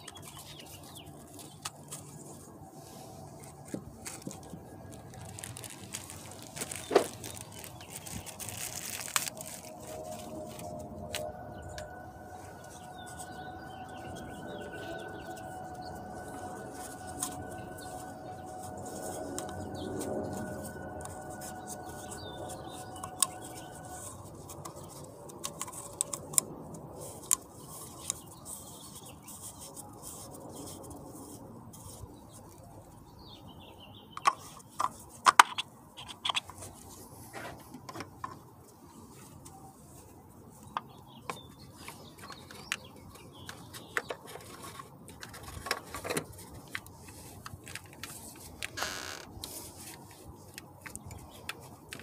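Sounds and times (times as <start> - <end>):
faint birds chirping: 0.0 - 52.0
two-note hum: 9.0 - 24.4.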